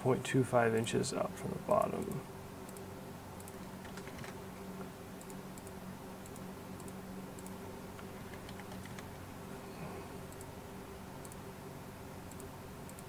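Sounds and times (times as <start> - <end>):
steady low hum: 0.0 - 13.0
keyboard and mouse clicks: 3.4 - 4.4, 5.2 - 9.1.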